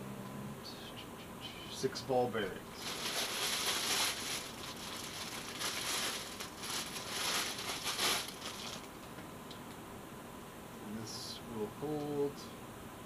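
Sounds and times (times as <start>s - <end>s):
plastic wrapping crinkling: 2.7s - 9.2s.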